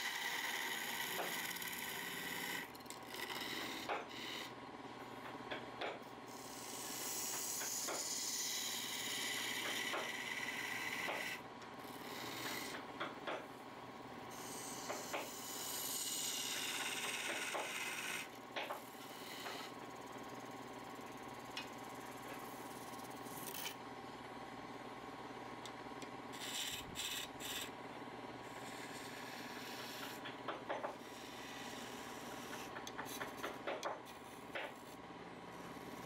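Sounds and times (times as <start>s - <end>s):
tool rasping against spinning wood: 0.0s - 4.6s, 6.3s - 13.4s, 14.3s - 19.8s, 26.4s - 27.8s, 28.5s - 35.0s.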